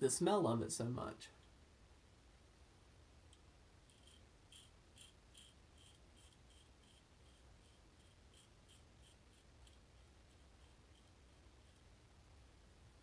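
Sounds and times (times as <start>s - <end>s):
razor scraping stubble: 3.9s - 11.9s.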